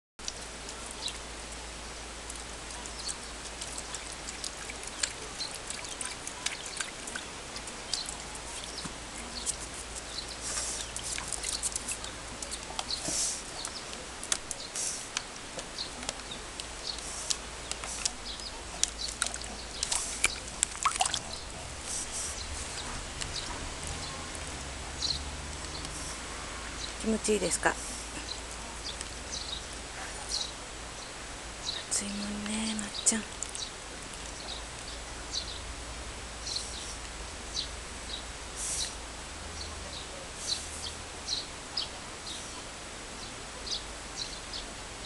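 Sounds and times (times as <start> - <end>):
dog splashing in tub of water: 2.3 - 13.6, 18.0 - 22.1.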